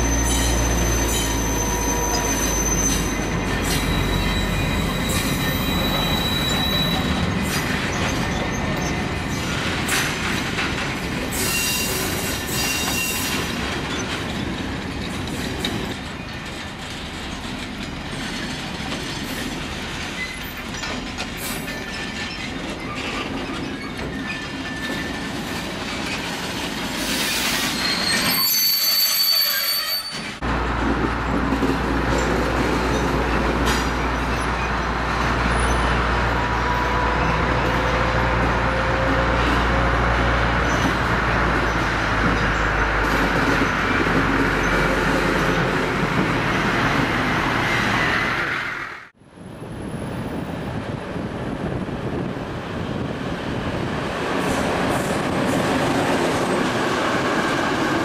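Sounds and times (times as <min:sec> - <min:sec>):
train wheels squealing on rails: 0:00.0 - 0:30.4, 0:31.6 - 0:49.1
wheels clicking over rail joints: 0:12.8 - 0:28.3
diesel locomotive low drone: 0:30.4 - 0:58.0.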